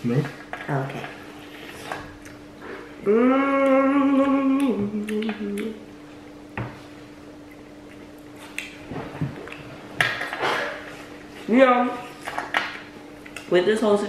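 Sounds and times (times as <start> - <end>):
low electrical hum: 0.0 - 14.0
person humming mmm: 2.6 - 5.9.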